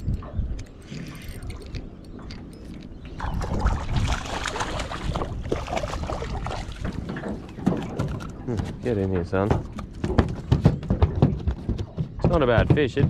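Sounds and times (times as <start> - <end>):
fish thrashing in water: 3.1 - 8.2.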